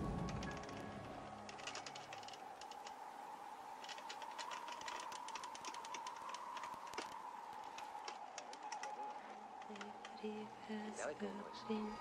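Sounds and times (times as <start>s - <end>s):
faint steady tone: 0.0s - 12.0s
film crackle clicks: 3.8s - 10.4s.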